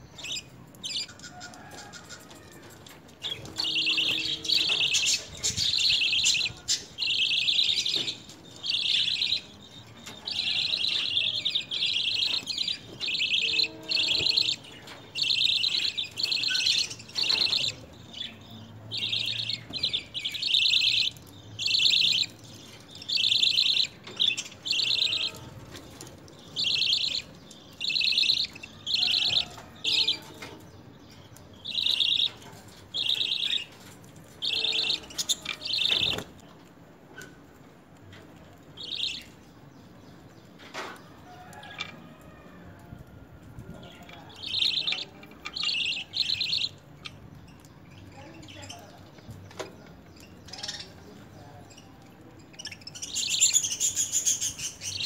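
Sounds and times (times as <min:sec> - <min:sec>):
budgerigars chirping: 0:03.3 - 0:09.5, 0:10.3 - 0:25.5, 0:26.4 - 0:30.3, 0:31.6 - 0:32.4, 0:33.0 - 0:33.8, 0:34.4 - 0:36.2, 0:44.0 - 0:47.2.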